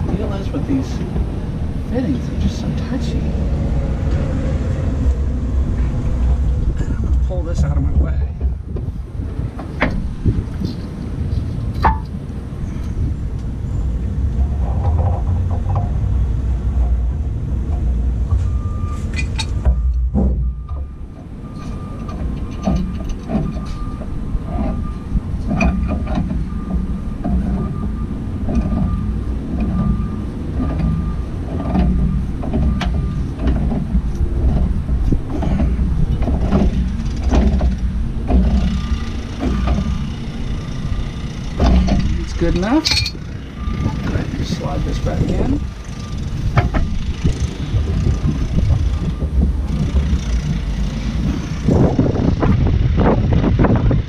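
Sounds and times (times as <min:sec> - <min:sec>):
steady low rumble: 0:00.0 - 0:54.0
metallic clicks and knocks: 0:09.5 - 0:13.5, 0:16.8 - 0:51.8.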